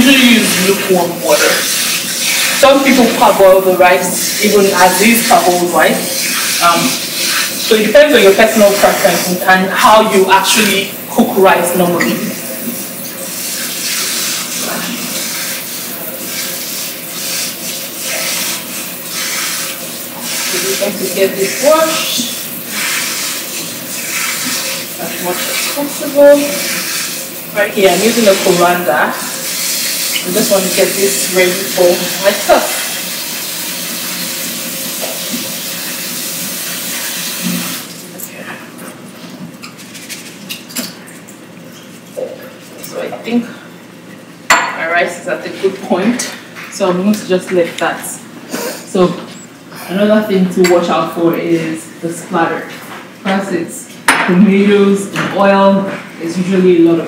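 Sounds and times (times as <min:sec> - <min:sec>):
tap running into sink: 0:34.9 - 0:35.6.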